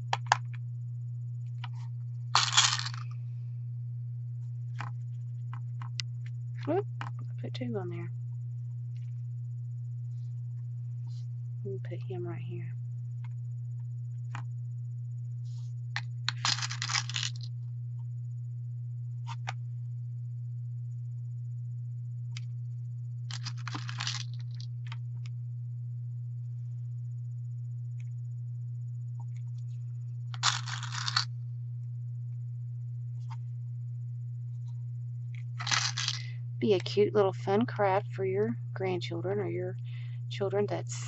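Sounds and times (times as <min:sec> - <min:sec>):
steady low hum: 0:00.0 - 0:41.0
beads rattling in plastic box: 0:02.3 - 0:03.0, 0:16.3 - 0:17.5, 0:23.3 - 0:24.6, 0:30.4 - 0:31.3, 0:35.6 - 0:36.3.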